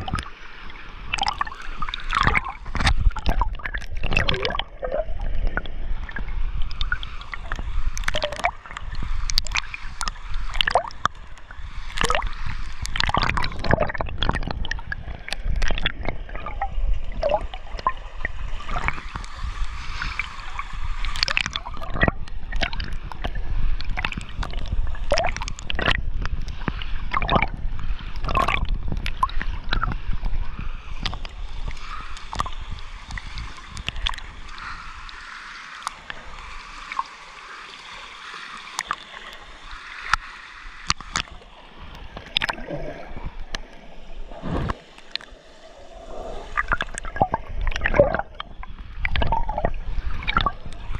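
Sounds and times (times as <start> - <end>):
pool water gurgling and sloshing: 0.0 - 50.9
water splashes: 0.0 - 50.9
bubbly pops: 1.1 - 5.0, 12.9 - 14.8, 46.6 - 48.4.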